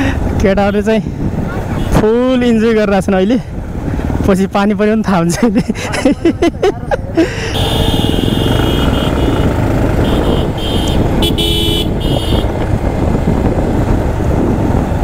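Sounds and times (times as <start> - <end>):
wind and road noise: 0.0 - 15.0
motorcycle engine running: 7.6 - 15.0.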